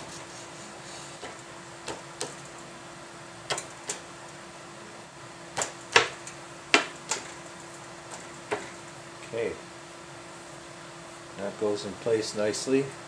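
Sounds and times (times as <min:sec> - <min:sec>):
faint hum: 0:00.0 - 0:13.0
sharp knocks and clicks: 0:01.2 - 0:02.4, 0:03.5 - 0:04.0.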